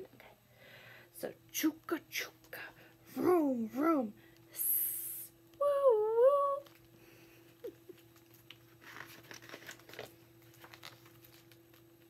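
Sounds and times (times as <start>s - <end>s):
woman singing woo: 4.9s - 6.7s
book pages flipping: 7.9s - 12.0s.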